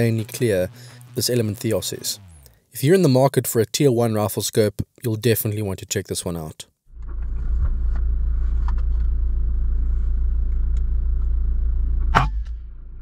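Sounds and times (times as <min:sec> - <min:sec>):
steady low rumble: 0:00.0 - 0:02.6, 0:06.9 - 0:13.0.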